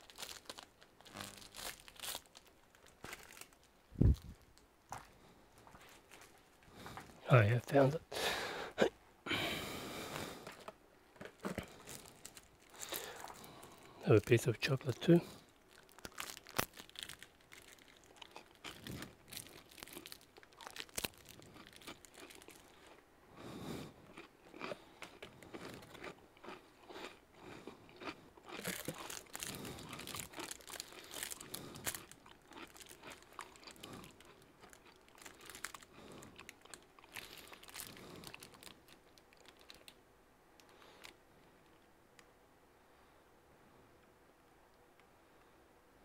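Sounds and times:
person chewing chocolate: 0:00.0 - 0:04.2, 0:11.3 - 0:14.0, 0:14.8 - 0:39.9
plastic tubs and bag rustling: 0:00.0 - 0:05.0, 0:28.6 - 0:32.1.

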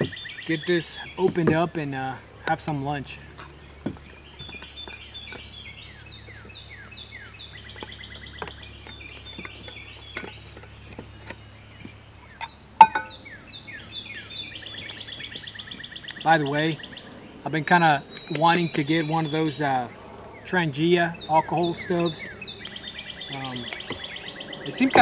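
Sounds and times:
low background hum: 0:00.0 - 0:25.0
songbirds chirping and trilling: 0:00.0 - 0:25.0
metallic clink: 0:12.8 - 0:13.2.

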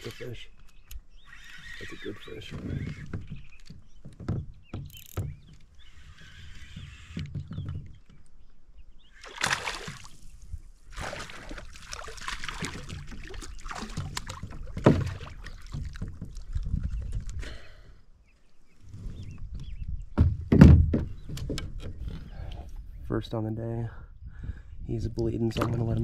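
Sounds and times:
fish splashing at water surface: 0:09.2 - 0:10.2, 0:10.9 - 0:15.8
knocks against kayak hull: 0:13.8 - 0:16.3, 0:20.2 - 0:22.0
loud thump: 0:20.2 - 0:21.1.

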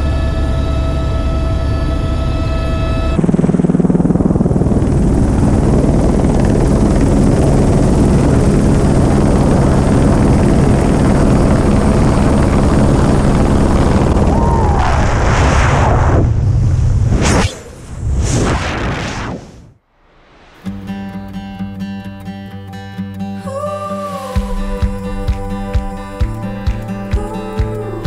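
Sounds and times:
helicopter running: 0:00.0 - 0:15.2
rush of wind: 0:03.2 - 0:19.8.

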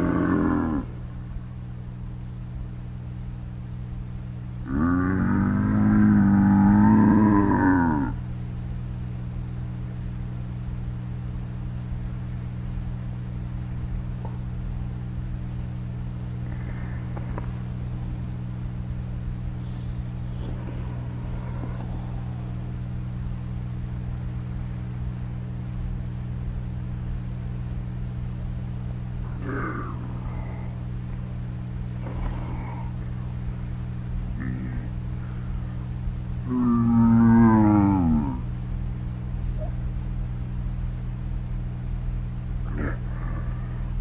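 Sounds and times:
faint animal calls: 0:00.0 - 0:01.1, 0:19.4 - 0:24.0, 0:29.2 - 0:31.2, 0:42.6 - 0:44.0
low hum of held tones: 0:00.0 - 0:44.0.

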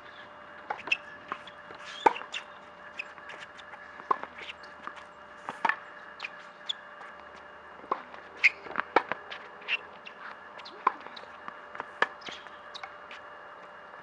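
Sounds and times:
racket hitting tennis ball: 0:00.7 - 0:04.9, 0:05.5 - 0:05.8, 0:07.8 - 0:09.8, 0:10.6 - 0:12.8
shoe scuffs on court: 0:00.7 - 0:07.2, 0:08.0 - 0:13.3.

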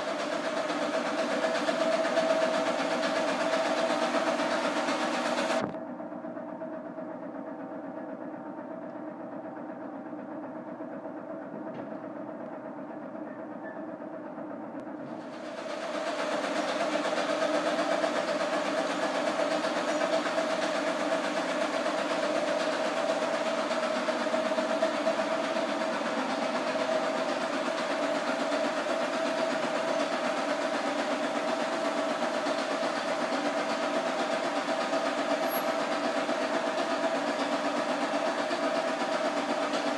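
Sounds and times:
machine mechanical drone: 0:35.2 - 0:36.2.

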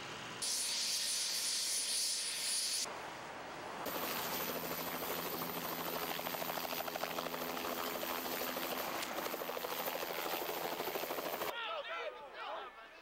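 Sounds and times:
helicopter engine hum: 0:03.9 - 0:11.5
helicopter rotor beating: 0:03.9 - 0:11.5.

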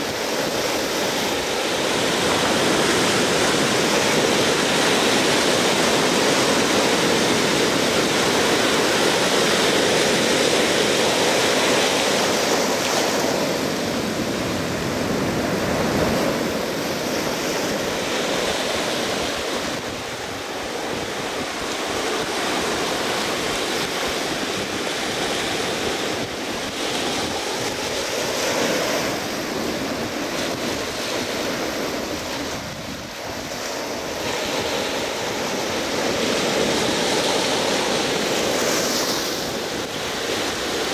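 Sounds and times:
surf breaking on a beach: 0:00.0 - 0:40.9
wind blowing across microphone: 0:00.0 - 0:40.9.

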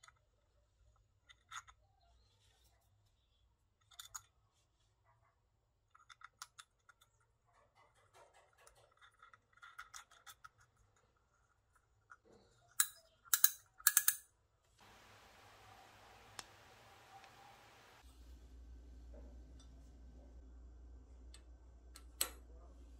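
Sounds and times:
fishing reel parts clicking: 0:12.8 - 0:14.2
steady faint hiss: 0:14.8 - 0:22.9.

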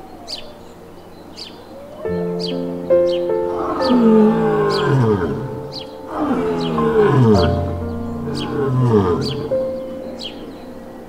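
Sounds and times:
soft held music tones: 0:00.0 - 0:11.0
lion roaring: 0:03.5 - 0:09.8.

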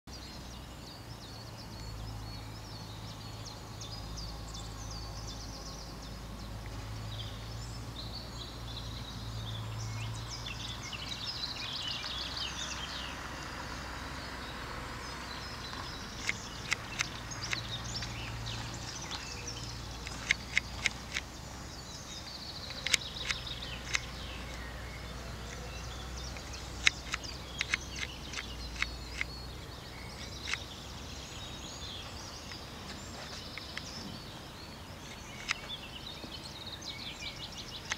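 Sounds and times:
small birds chirping: 0:00.1 - 0:37.9
sharp clicks: 0:15.6 - 0:24.7, 0:25.5 - 0:29.4, 0:30.1 - 0:30.8, 0:35.0 - 0:35.8, 0:37.6 - 0:37.9.

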